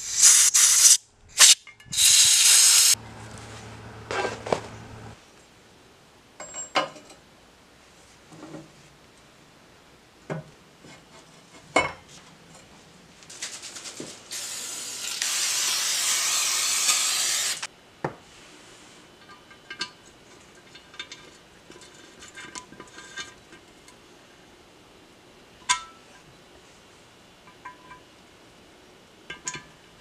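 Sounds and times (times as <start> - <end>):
loud steady hiss: 0.0 - 3.0, 13.3 - 17.8.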